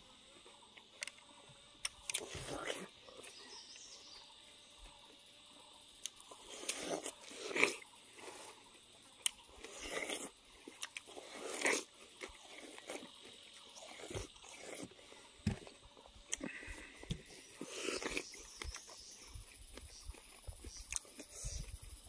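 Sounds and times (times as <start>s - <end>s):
biting and chewing watermelon: 1.8s - 3.4s, 6.0s - 8.6s, 9.2s - 21.8s.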